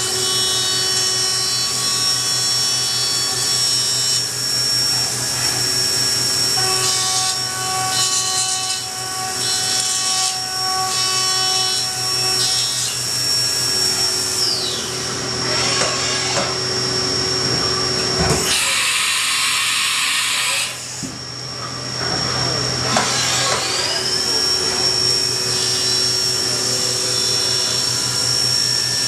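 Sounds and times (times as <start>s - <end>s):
milling machine whine: 0.0s - 29.0s.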